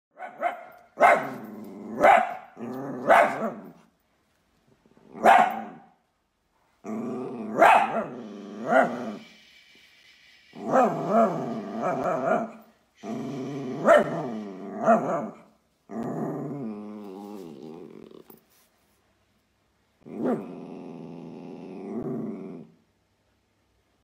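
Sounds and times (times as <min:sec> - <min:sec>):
dog barking: 0:00.1 - 0:01.4, 0:02.0 - 0:03.7, 0:05.2 - 0:05.9, 0:07.6 - 0:09.0, 0:13.8 - 0:15.4
dog growling: 0:01.2 - 0:02.0, 0:02.6 - 0:03.8, 0:06.8 - 0:09.4, 0:10.5 - 0:18.4, 0:20.0 - 0:22.8.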